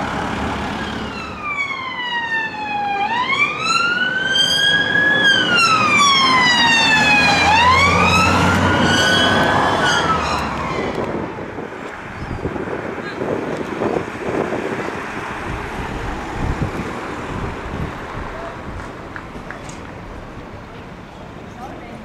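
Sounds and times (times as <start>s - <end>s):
car engine and tyres rumbling: 0.0s - 22.0s
police siren wailing: 0.5s - 11.5s.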